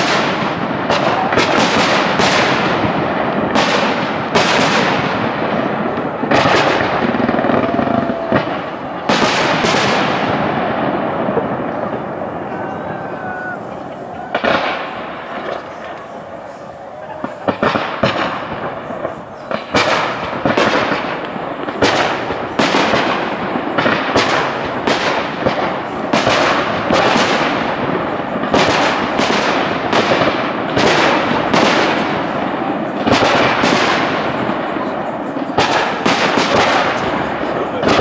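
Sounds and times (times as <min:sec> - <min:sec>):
firework shells bursting: 0:00.0 - 0:38.0
fireworks crackling: 0:00.0 - 0:38.0.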